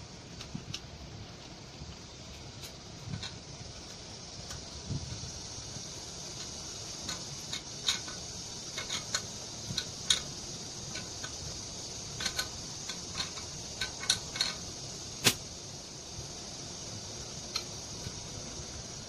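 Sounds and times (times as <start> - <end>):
steady background hiss: 0.0 - 19.0
hex wrench metallic clicks: 6.3 - 15.4.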